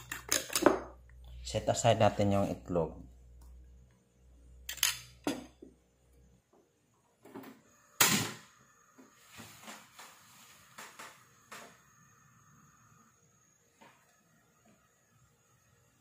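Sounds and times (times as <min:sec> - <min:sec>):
kitchenware knocking and clattering: 0:05.0 - 0:05.7.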